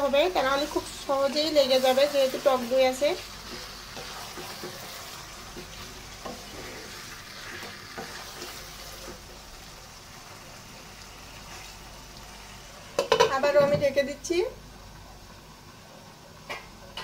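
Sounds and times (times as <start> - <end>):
chicken sizzling in a wok: 0.0 - 17.0
wooden spatula scraping: 1.7 - 9.4.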